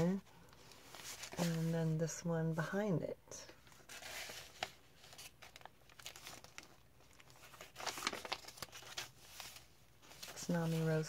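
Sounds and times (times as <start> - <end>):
paper rustling and crinkling: 0.0 - 2.0, 3.4 - 11.0
page turning: 0.6 - 1.8, 3.5 - 11.0.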